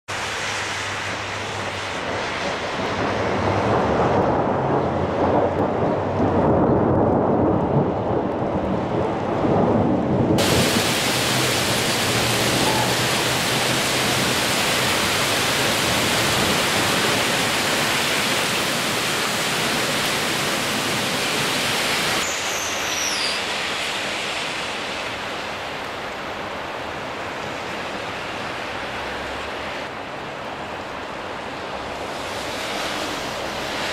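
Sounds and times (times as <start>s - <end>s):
heavy rain pouring: 0.1s - 33.9s
high falling squeak: 22.2s - 23.6s.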